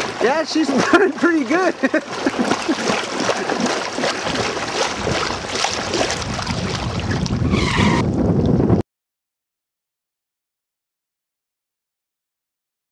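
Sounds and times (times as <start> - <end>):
lake waves lapping: 0.0 - 8.0
wind buffeting microphone: 0.0 - 8.8.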